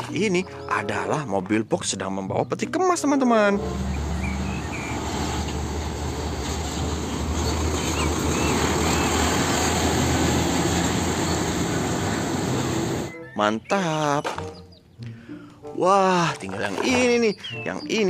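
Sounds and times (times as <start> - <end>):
truck diesel engine drone: 3.6 - 13.1
road and tyre noise: 3.6 - 13.2.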